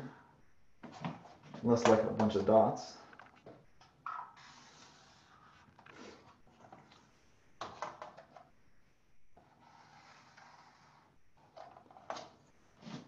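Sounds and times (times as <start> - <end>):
pen scratching: 4.1 - 6.2, 9.4 - 12.2.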